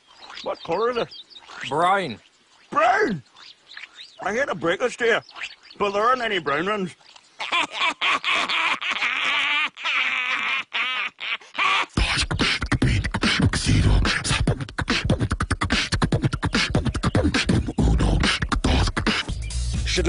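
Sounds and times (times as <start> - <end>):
wavering vocal cry: 7.4 - 19.4
person beatboxing: 11.9 - 19.8.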